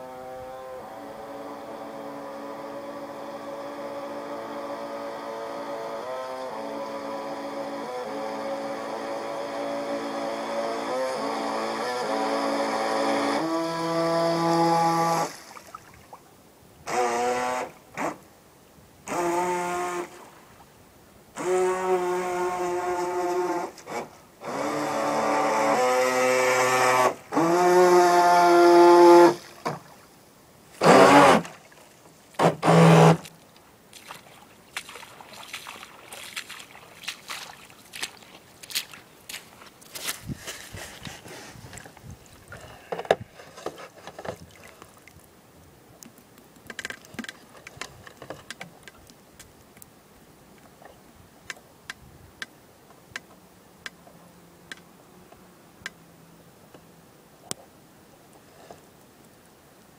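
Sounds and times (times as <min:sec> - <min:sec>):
small electric motor whining: 0:00.0 - 0:15.3, 0:16.9 - 0:18.2, 0:21.4 - 0:29.4
faint ticks: 0:54.7 - 0:56.0.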